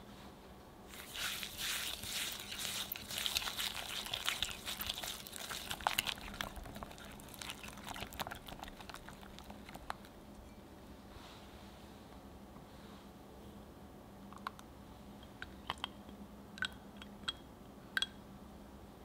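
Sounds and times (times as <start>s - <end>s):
whisk squishing thick mixture: 0.9s - 10.2s.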